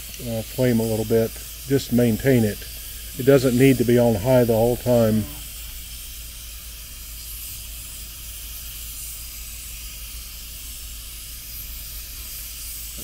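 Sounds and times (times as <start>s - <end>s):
pressure cooker steam hissing: 0.0s - 13.0s.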